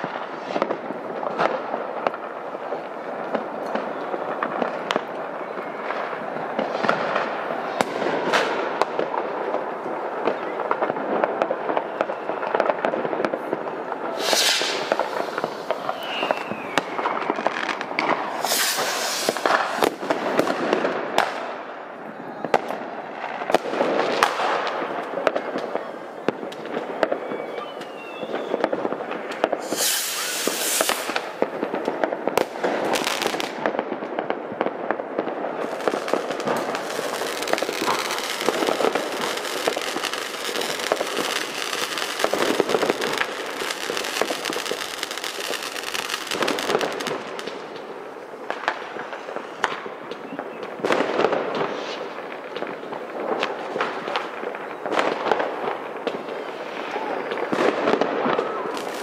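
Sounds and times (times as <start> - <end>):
fireworks bangs and crackles: 0.0 - 59.0
fireworks hissing bursts: 13.3 - 20.7, 27.7 - 33.6, 35.5 - 49.7, 56.2 - 59.0.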